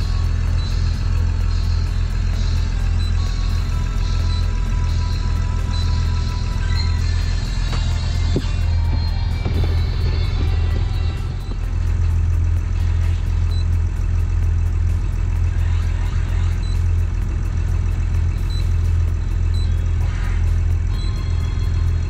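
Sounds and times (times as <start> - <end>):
boat diesel engine idling: 0.0 - 22.0.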